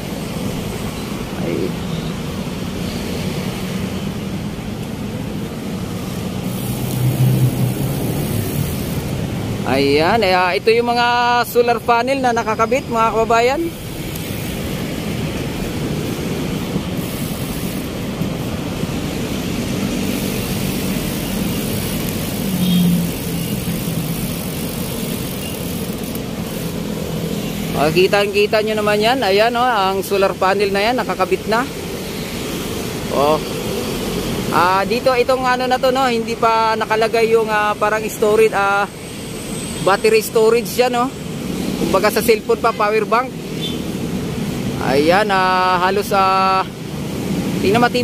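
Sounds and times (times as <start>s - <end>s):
vehicle engines running: 0.0s - 39.0s
road traffic: 0.0s - 48.0s
vehicle engine passing close: 5.9s - 9.7s, 17.8s - 28.0s.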